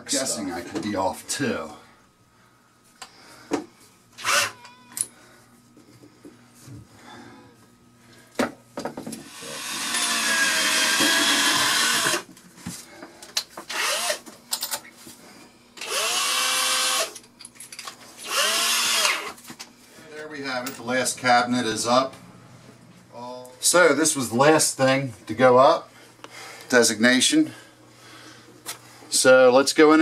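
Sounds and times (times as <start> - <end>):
power drill driving screws: 4.2 - 4.6, 9.2 - 12.3, 13.7 - 14.2, 15.8 - 17.2, 18.2 - 19.4.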